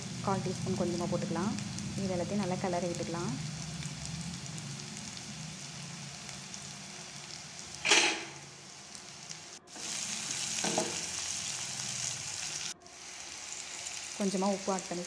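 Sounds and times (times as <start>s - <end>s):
food sizzling in hot oil: 0.0s - 15.0s
metal spatula scraping pan: 7.8s - 8.4s.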